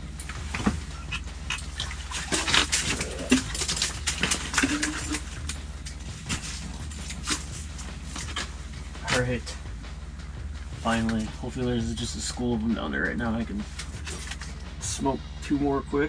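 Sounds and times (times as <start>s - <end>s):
water splashing: 0.0s - 9.6s, 10.8s - 14.8s
steady low hum: 0.0s - 16.0s
fish flopping against ice: 0.1s - 9.3s.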